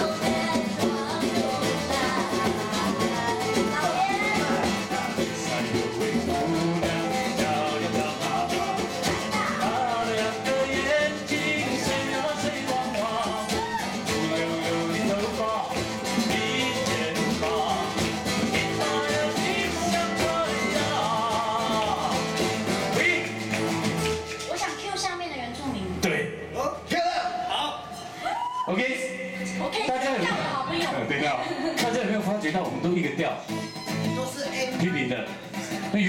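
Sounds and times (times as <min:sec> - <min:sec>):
people singing: 0:00.0 - 0:24.2
acoustic guitar: 0:00.0 - 0:36.0.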